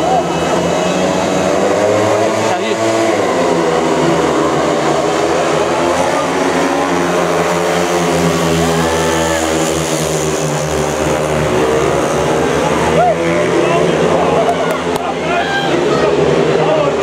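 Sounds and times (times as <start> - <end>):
motorcycle engines racing: 0.0 - 17.0.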